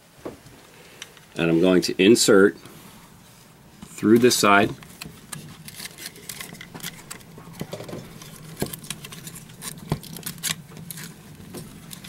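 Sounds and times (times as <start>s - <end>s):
wire handling clicks and rustles: 3.8s - 12.0s.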